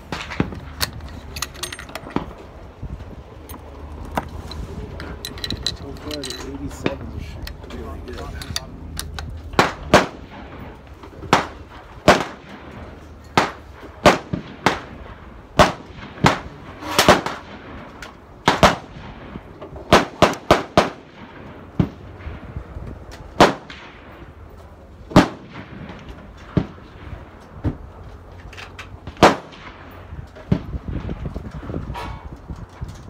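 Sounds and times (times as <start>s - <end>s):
gunshots: 9.6s - 22.2s, 23.4s - 24.2s, 25.1s - 27.2s, 29.1s - 30.9s.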